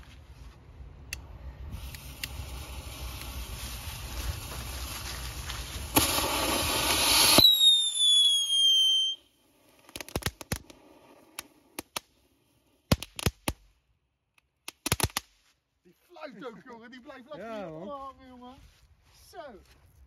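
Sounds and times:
firework fountain hissing: 0:01.6 - 0:13.3
firework crackling pops: 0:01.7 - 0:13.8, 0:14.5 - 0:15.6
firework whistle sliding down: 0:01.8 - 0:09.4.

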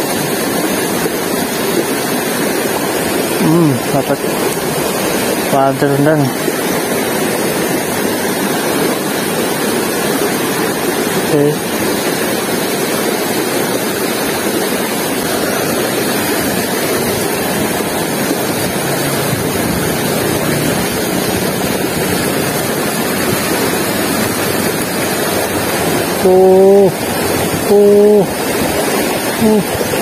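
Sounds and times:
river water rushing over rocks: 0:00.0 - 0:30.0.

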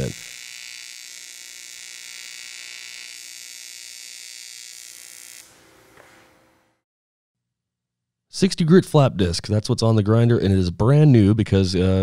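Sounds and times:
welding arc buzzing: 0:00.0 - 0:06.8.

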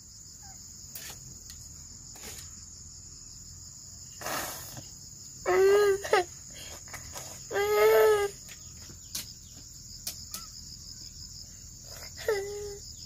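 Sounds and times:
insects chirring: 0:00.0 - 0:13.0
young boy crying: 0:05.4 - 0:08.5, 0:11.9 - 0:12.8.

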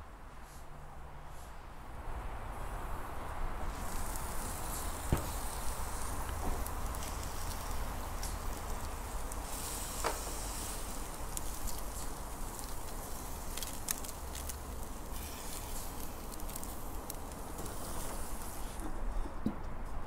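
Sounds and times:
fish and bacon sizzling on grill: 0:03.6 - 0:18.8
sharp crackles and clicks: 0:03.7 - 0:18.7.

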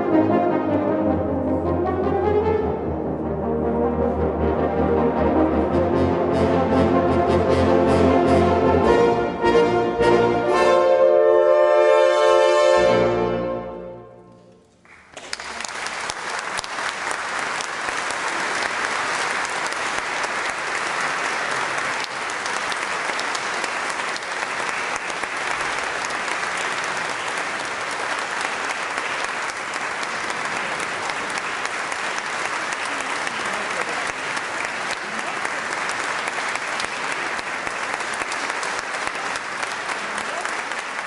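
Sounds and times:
french horns holding a chord: 0:00.0 - 0:14.6
audience applause: 0:14.8 - 0:41.0.

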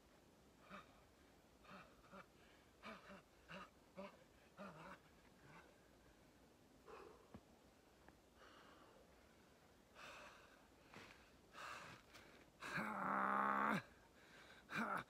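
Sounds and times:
man breathing: 0:06.8 - 0:07.4, 0:08.3 - 0:12.8, 0:14.0 - 0:14.7.

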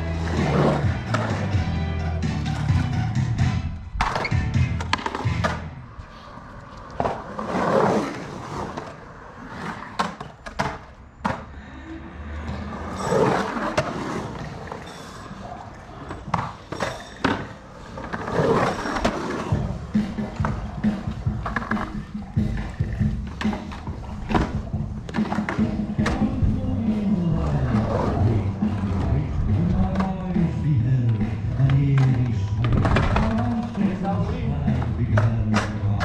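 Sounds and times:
background music: 0:00.0 - 0:05.8, 0:19.3 - 0:36.0
skateboard wheels rolling on concrete: 0:00.0 - 0:36.0
skateboard clacks: 0:02.4 - 0:05.8, 0:06.4 - 0:11.6, 0:12.4 - 0:36.0.

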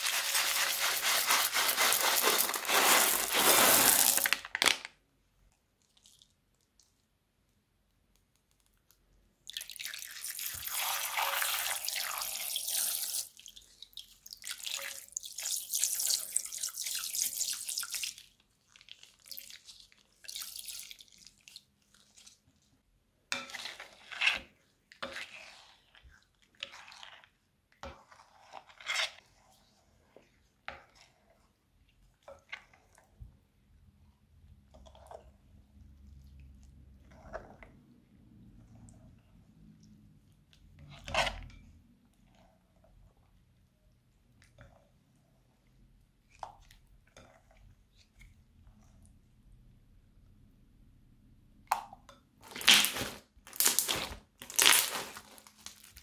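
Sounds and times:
slime squelching while stirred: 0:00.0 - 0:04.4, 0:05.5 - 0:50.4, 0:51.7 - 0:56.0
liquid pouring into a bowl: 0:09.5 - 0:22.2.

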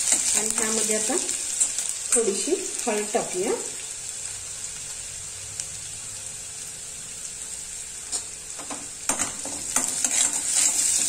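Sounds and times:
onion sizzling in hot oil: 0:00.0 - 0:11.0
steel spoon scraping pan: 0:09.1 - 0:11.0.

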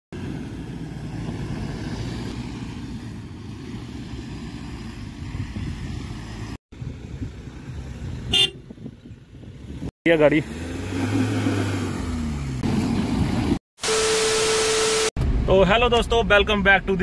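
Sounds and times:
wind rumble on microphone: 0:04.2 - 0:09.9.

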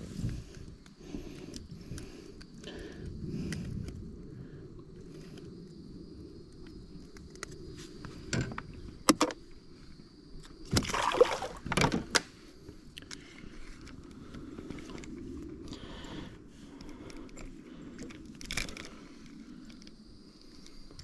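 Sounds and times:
knocks and clicks in kayak: 0:08.3 - 0:09.4, 0:11.6 - 0:12.3.

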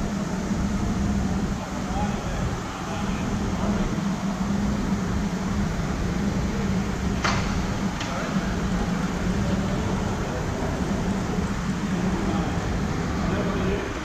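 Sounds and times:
distant voices: 0:00.0 - 0:14.0.

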